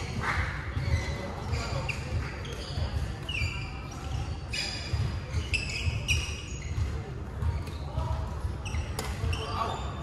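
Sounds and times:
shoes squeaking: 0:00.0 - 0:10.0
racket striking shuttlecock: 0:08.9 - 0:09.4.

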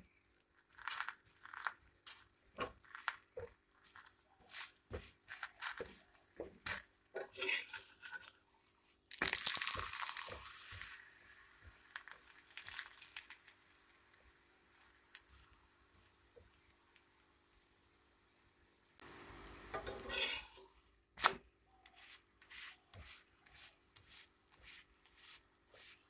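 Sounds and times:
flatbread sizzling: 0:00.0 - 0:26.0
spatula scraping and tapping griddle: 0:00.8 - 0:09.0, 0:19.6 - 0:26.0.

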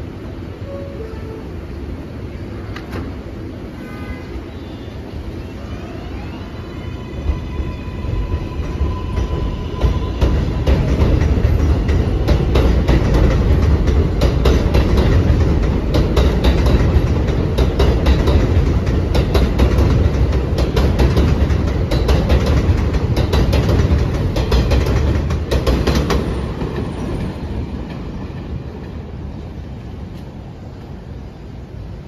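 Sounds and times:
subway train rumble: 0:00.0 - 0:32.0
wheels clacking over rail joints: 0:08.6 - 0:29.0.

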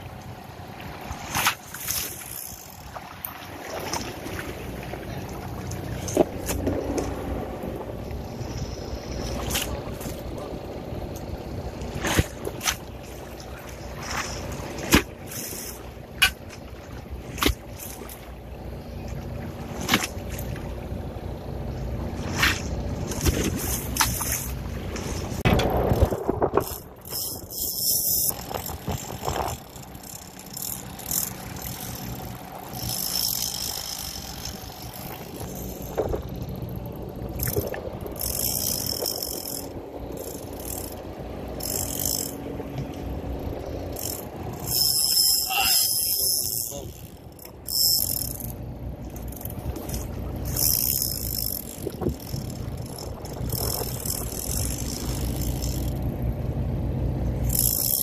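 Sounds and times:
boat engine running: 0:00.0 - 0:58.0
fishing reel gears clicking: 0:01.3 - 0:03.1, 0:25.6 - 0:56.5, 0:57.3 - 0:58.0.

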